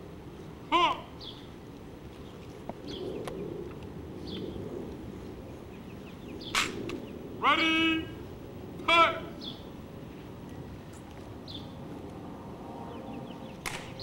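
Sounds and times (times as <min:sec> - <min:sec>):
background hiss: 0:00.0 - 0:14.0
sharp clicks: 0:13.6 - 0:14.0.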